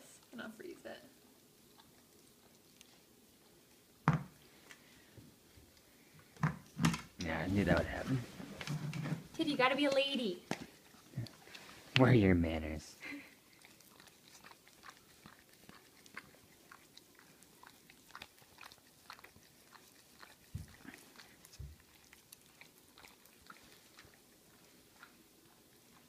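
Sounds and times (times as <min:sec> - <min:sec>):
dog licking and lapping: 0:01.2 - 0:04.6, 0:09.3 - 0:26.0.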